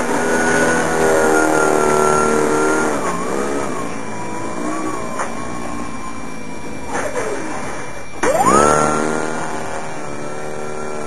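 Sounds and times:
electric motor and propeller whining: 8.2s - 9.2s.

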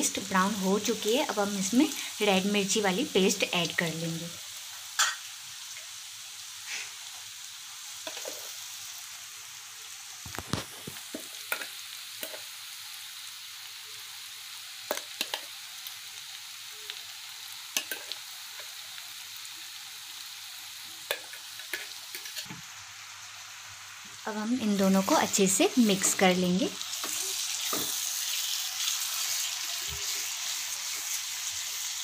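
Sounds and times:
oil sizzling: 0.0s - 32.0s
sharp pops in frying oil: 5.0s - 5.2s, 10.2s - 12.5s, 14.8s - 15.5s, 17.7s - 18.7s, 21.0s - 22.7s, 27.0s - 28.0s.

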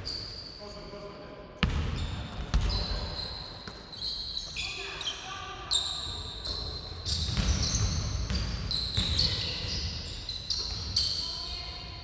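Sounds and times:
sneakers squeaking: 0.0s - 0.9s, 1.6s - 11.9s
basketball bouncing: 1.6s - 2.9s, 6.5s - 9.7s.

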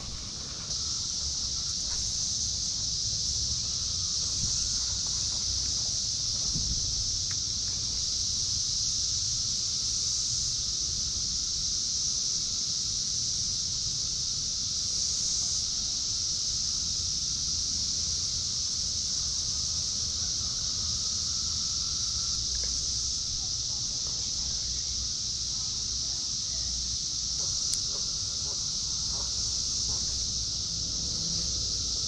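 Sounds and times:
cicadas buzzing: 0.0s - 32.0s
low insect drone: 0.0s - 32.0s
wind rumble on microphone: 4.2s - 5.1s, 6.3s - 7.3s.

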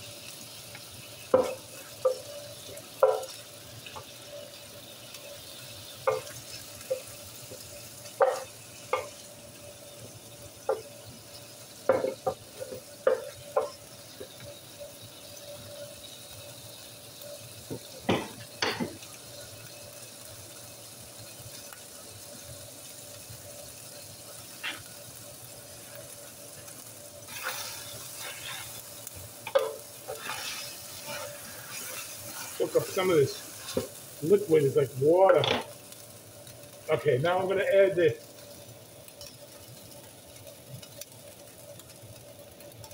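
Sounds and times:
chicken sizzling in skillet: 0.0s - 42.9s.

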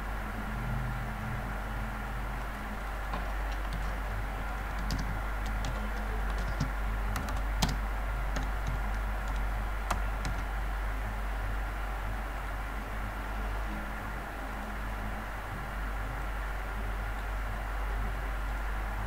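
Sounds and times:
steady low hum: 0.0s - 19.0s
keyboard key clicks: 4.7s - 10.5s.

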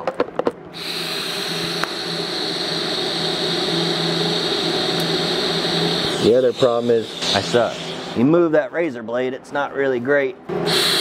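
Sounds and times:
welding arc hissing: 0.7s - 8.2s, 10.7s - 11.0s.

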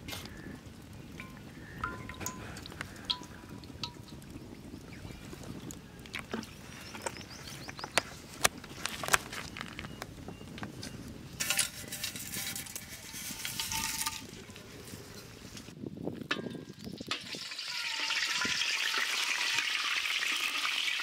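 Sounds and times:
oil crackling: 0.0s - 21.0s
spices sizzling in hot oil: 16.7s - 21.0s.

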